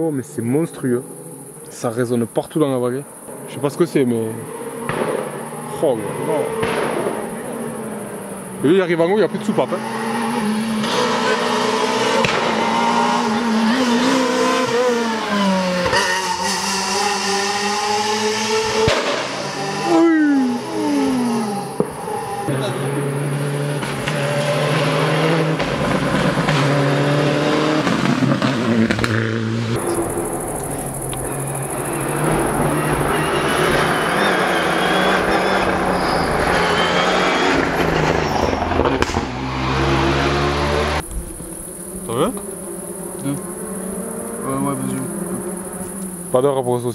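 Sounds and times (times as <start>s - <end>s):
car engine revving hard: 4.4s - 46.4s
sharp crack: 4.8s - 5.4s, 6.6s - 7.3s, 12.2s - 12.7s, 18.8s - 19.6s, 38.8s - 39.4s.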